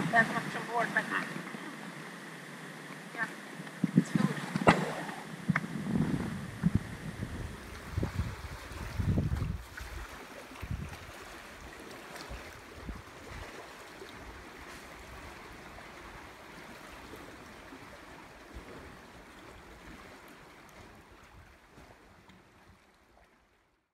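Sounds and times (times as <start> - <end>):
seawater lapping among rocks: 0.0 - 23.7
low thumps: 3.8 - 7.6.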